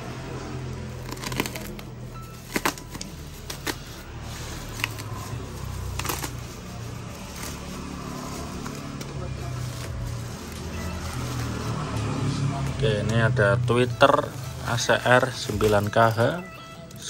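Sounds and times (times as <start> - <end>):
bubble wrap crinkling: 0.9 - 17.0
utility knife cutting plastic: 1.0 - 6.5.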